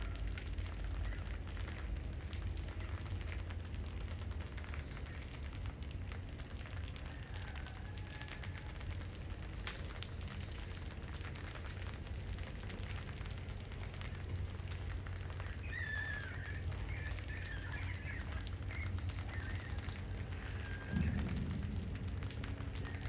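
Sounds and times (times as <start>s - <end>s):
low rumble: 16.6s - 23.0s.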